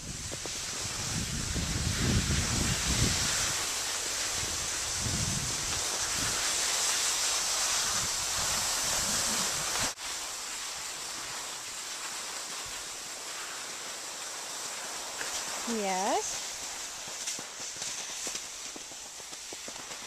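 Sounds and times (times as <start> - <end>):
wind buffeting microphone: 0.0 - 6.6, 7.4 - 10.0
skis sliding over snow: 0.0 - 20.0.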